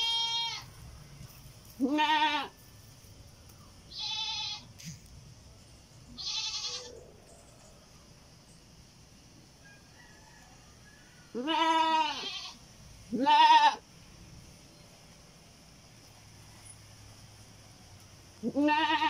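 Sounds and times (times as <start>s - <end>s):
goat bleating: 0.0s - 0.7s, 1.8s - 2.6s, 3.9s - 4.7s, 6.2s - 6.9s, 11.4s - 13.8s, 18.4s - 19.0s.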